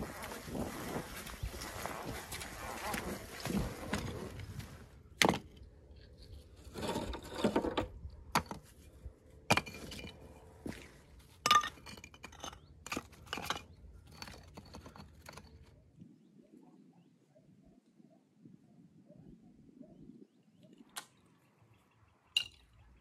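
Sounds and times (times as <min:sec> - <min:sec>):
stones grating and crunching: 0:00.0 - 0:08.7, 0:09.5 - 0:15.8
stones knocking and scraping: 0:00.1 - 0:08.8, 0:09.4 - 0:15.8.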